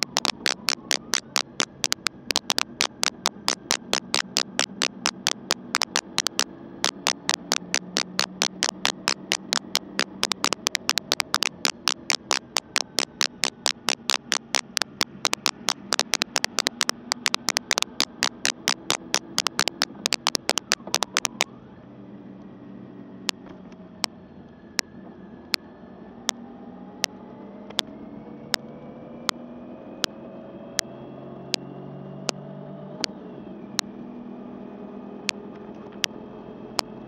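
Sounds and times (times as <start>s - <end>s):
raindrops clicking on camera: 0.0s - 21.5s.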